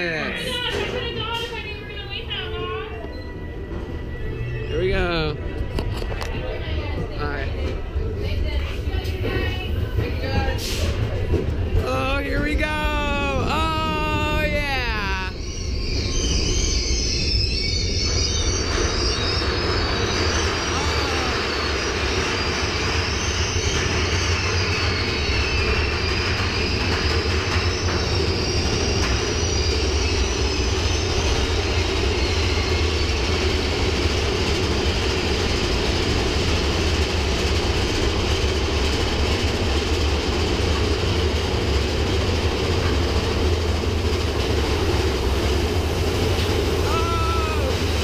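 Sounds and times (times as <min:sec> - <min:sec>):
roller coaster train rumble: 0:00.0 - 0:48.0
faint high squeal: 0:02.6 - 0:05.3, 0:14.0 - 0:26.8.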